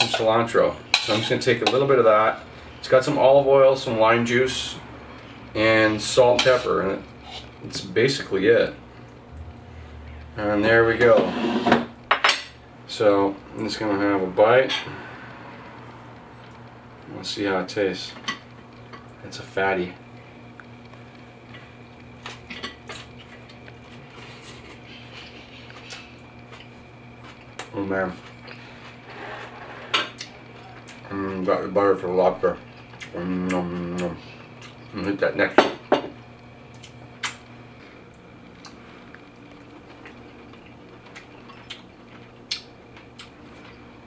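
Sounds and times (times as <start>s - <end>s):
low electrical hum: 0.0s - 44.0s.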